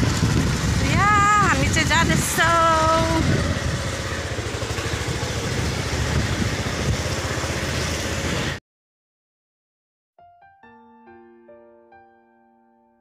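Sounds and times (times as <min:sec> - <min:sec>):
motorbike engine rumbling: 0:00.0 - 0:08.6
street noise: 0:00.0 - 0:08.6.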